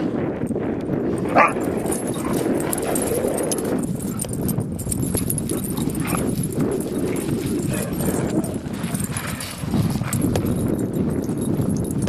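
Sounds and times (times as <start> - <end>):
dogs scuffling: 1.2 - 12.0
dog yipping: 1.3 - 1.6.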